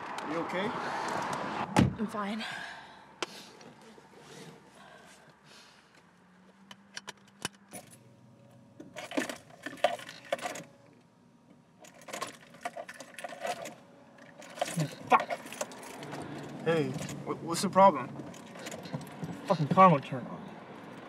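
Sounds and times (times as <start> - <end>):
car keys jangling in ignition: 6.9 - 10.8, 11.8 - 20.2.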